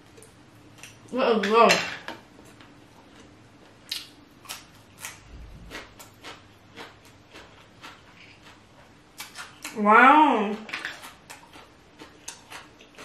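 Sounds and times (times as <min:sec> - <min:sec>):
wet mouth chewing: 0:03.0 - 0:09.8, 0:10.7 - 0:13.0.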